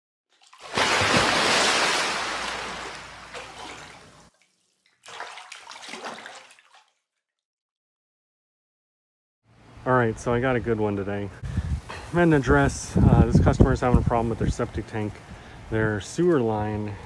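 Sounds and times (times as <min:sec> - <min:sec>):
water splash: 0:00.4 - 0:07.0.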